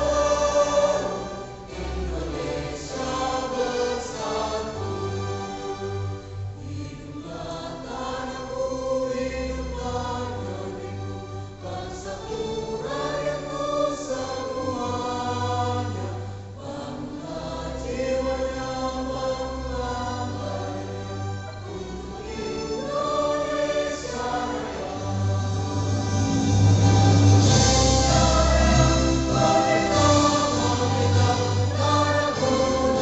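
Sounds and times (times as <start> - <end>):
choir singing: 0.0 - 33.0.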